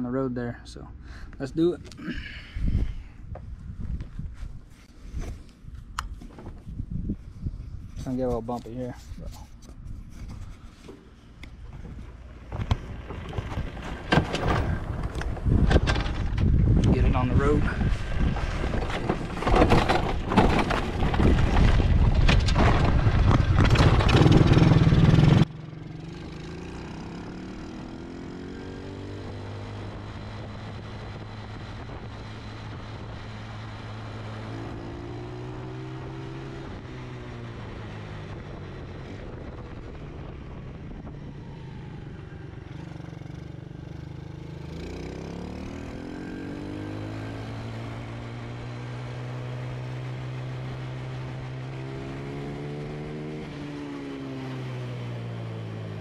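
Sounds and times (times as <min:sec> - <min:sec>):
wind buffeting microphone: 0:02.4 - 0:10.6, 0:11.6 - 0:25.0
atv engine accelerating: 0:22.5 - 0:56.0.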